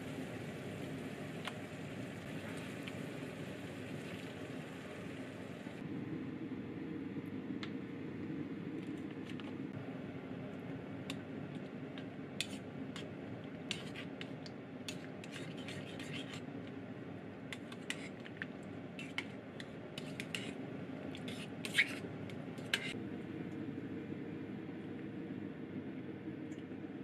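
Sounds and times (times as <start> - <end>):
steady low hum: 0.0 - 27.0
spoon scraping metal pot: 13.7 - 14.3, 14.9 - 16.5, 19.0 - 23.0.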